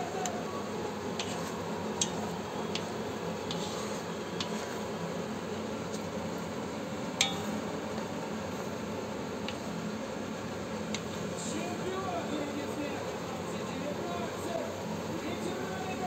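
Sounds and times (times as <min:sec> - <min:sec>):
low background noise: 0:00.0 - 0:16.0
spatula stirring thick sauce: 0:01.0 - 0:07.5
spatula clicking against pan: 0:02.0 - 0:03.7.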